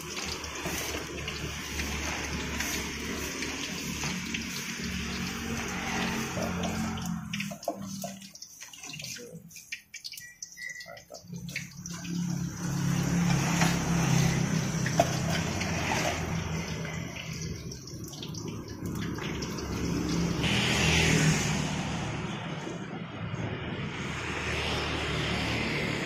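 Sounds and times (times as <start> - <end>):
hot oil sizzling in a wok: 0.0 - 7.7, 11.8 - 21.6.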